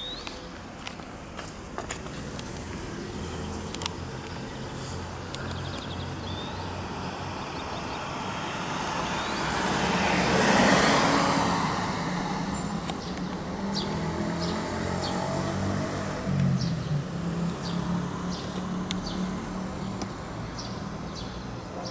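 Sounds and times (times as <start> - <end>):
vehicle passing by: 8.1 - 20.0.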